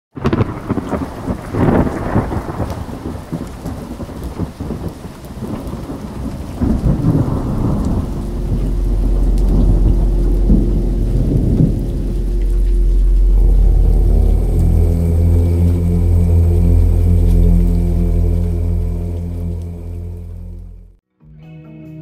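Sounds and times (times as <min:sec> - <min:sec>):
rumbling crackling noise: 0:00.1 - 0:21.0
steady very low drone: 0:06.6 - 0:21.0
faint held higher tone: 0:07.2 - 0:20.9.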